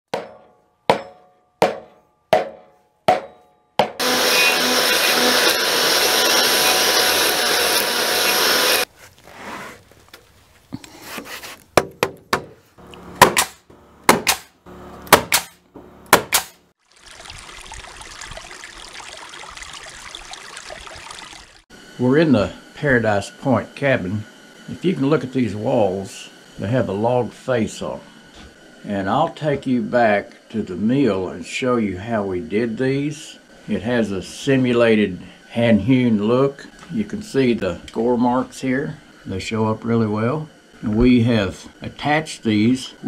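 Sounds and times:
axe chopping wood: 0.1s - 4.0s, 13.2s - 14.5s, 15.1s - 16.6s
knocks and strikes: 0.1s - 4.1s, 13.2s - 16.6s
power tool cutting wood: 4.0s - 8.9s.

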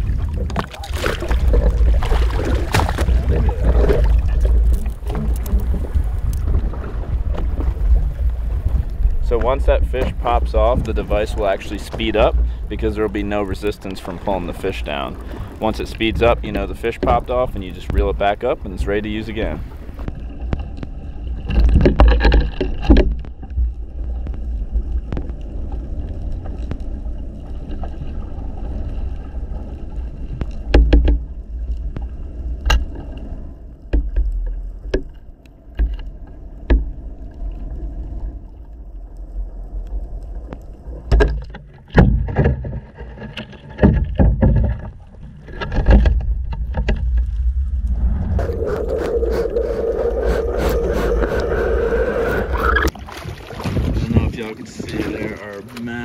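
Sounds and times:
muffled underwater rumble: 0.0s - 55.8s
steady hum: 46.4s - 52.9s.

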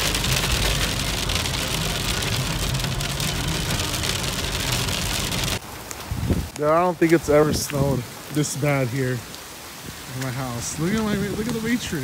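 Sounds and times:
car engine hum: 0.0s - 5.7s
rain drumming on a car roof: 0.0s - 12.0s.

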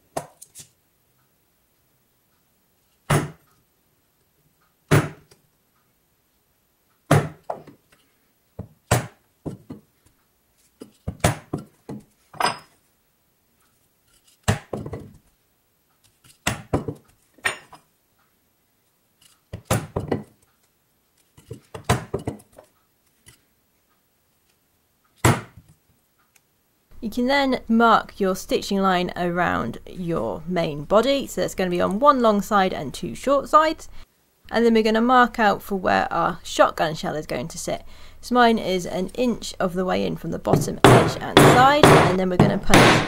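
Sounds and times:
mallet striking iron tool: 40.6s - 43.0s.

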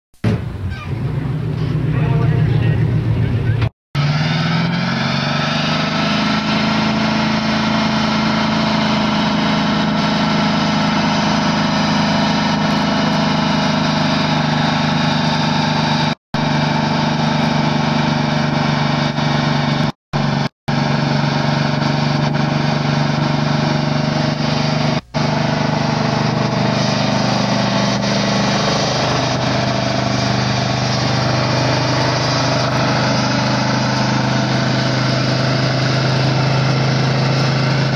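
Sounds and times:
car engine at high revs: 1.1s - 37.9s
tyres spinning on pavement: 21.4s - 37.9s.

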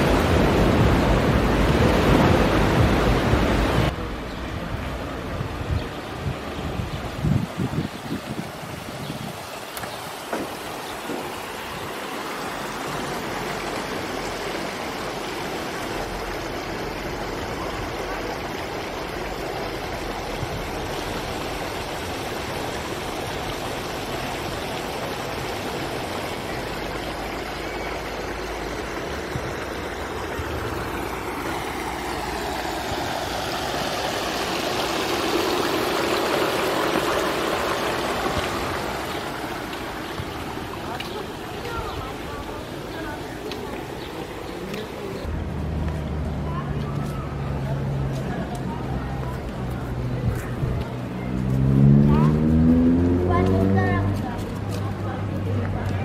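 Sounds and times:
steady rushing noise: 0.0s - 9.4s.

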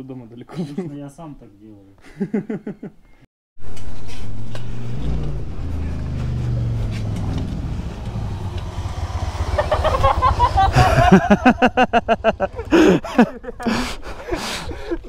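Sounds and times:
motorcycle engine rumble: 3.6s - 14.3s.

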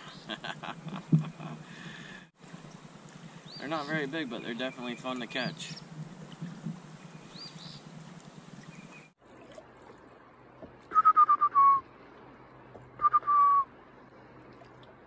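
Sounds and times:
whistled notes: 10.9s - 11.8s, 13.0s - 13.7s.

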